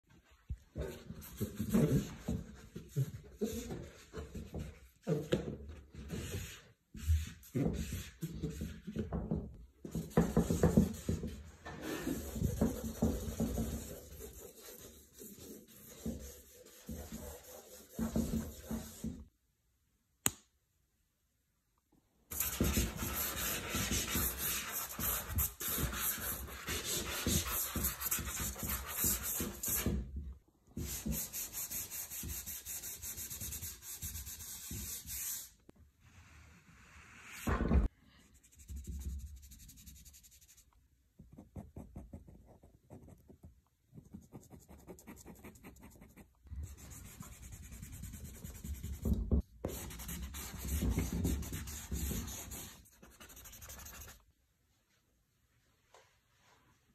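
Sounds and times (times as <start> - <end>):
charcoal scratching on paper: 11.9 - 19.1, 44.0 - 54.2.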